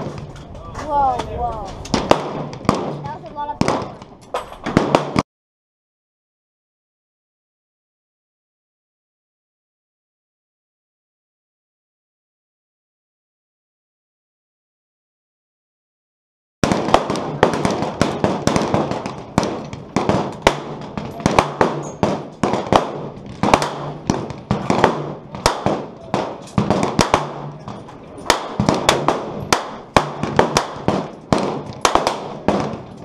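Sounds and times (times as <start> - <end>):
rifle shots echoing: 1.8 - 5.2, 16.6 - 33.0.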